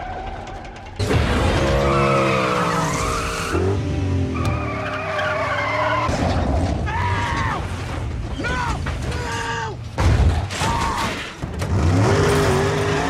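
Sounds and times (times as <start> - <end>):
car engines revving: 0.8 - 6.7, 11.4 - 13.0
tyres squealing: 4.3 - 9.8.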